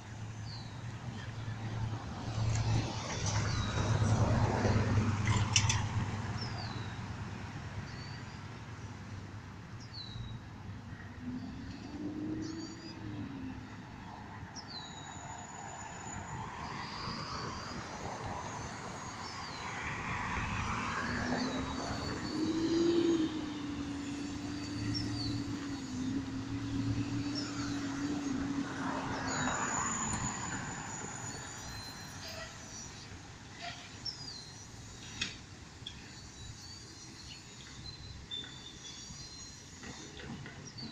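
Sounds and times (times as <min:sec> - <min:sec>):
distant engine hum: 0:00.0 - 0:40.9
small birds chirping: 0:35.9 - 0:40.9.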